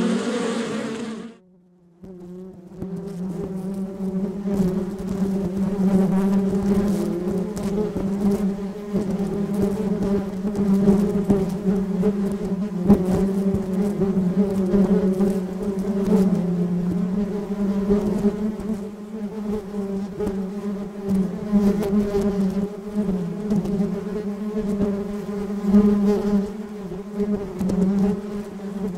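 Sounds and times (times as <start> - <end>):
bees buzzing: 0.0 - 1.4.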